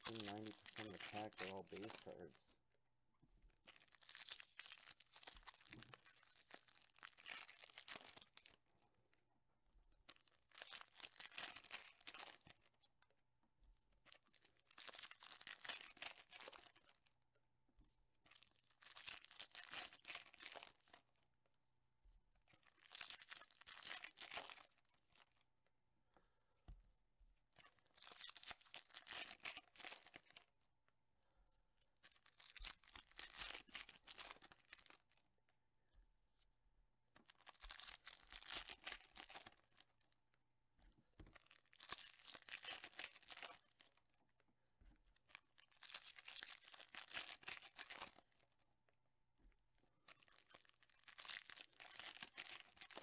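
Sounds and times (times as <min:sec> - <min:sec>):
wrappers torn and crinkled: 0:00.0 - 0:02.3, 0:03.7 - 0:08.6, 0:10.1 - 0:12.6, 0:14.1 - 0:17.0, 0:18.3 - 0:21.0, 0:22.6 - 0:25.4, 0:27.6 - 0:30.5, 0:32.0 - 0:35.2, 0:37.2 - 0:40.0, 0:41.2 - 0:44.1, 0:45.3 - 0:48.4, 0:50.1 - 0:53.0.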